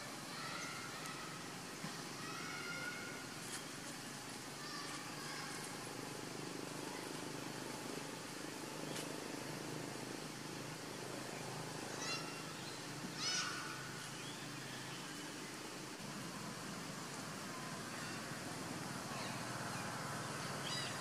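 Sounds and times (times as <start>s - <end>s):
high chirping animal calls: 20.5s - 21.0s.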